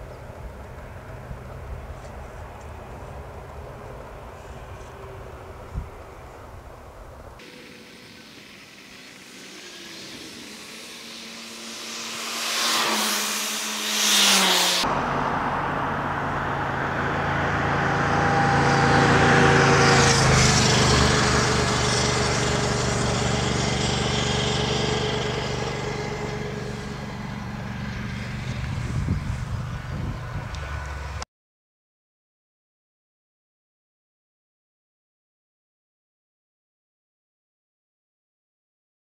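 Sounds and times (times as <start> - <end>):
jet engines rushing and whining: 0.0 - 31.2.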